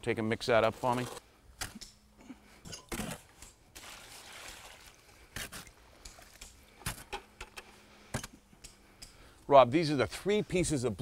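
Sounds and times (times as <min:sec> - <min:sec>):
shovel scraping metal wheelbarrow: 0:00.5 - 0:01.2
wet mortar sloshing: 0:03.0 - 0:06.4.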